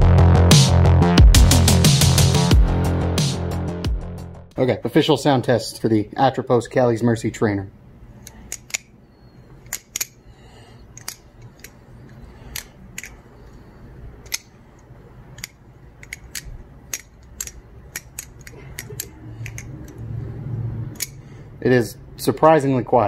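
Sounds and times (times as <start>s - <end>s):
butterfly knife clicking: 14.2s - 14.5s, 15.4s - 20.0s, 20.9s - 21.2s.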